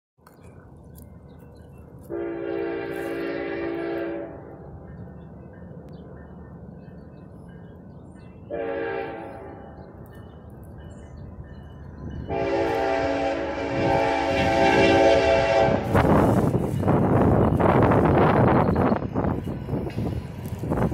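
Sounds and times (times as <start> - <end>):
train rumble: 0.2 - 20.9
locomotive chime horn: 2.1 - 4.6, 8.5 - 9.8, 12.2 - 16.4.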